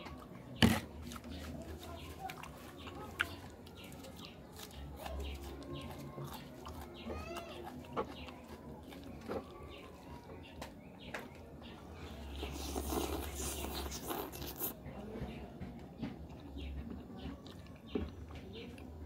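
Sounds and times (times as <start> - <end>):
hand squelching through food: 0.6 - 10.6, 12.1 - 14.8.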